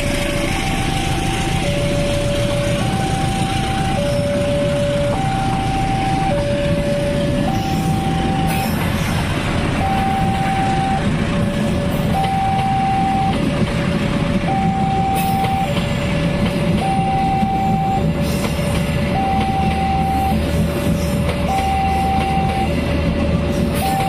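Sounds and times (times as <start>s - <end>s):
level crossing two-tone alarm: 0.0s - 8.8s, 9.8s - 11.2s, 12.0s - 13.4s, 14.5s - 18.2s, 19.0s - 20.4s, 21.4s - 22.8s, 23.8s - 24.0s
train rattles: 0.0s - 24.0s
train rumbling on rails: 0.0s - 24.0s.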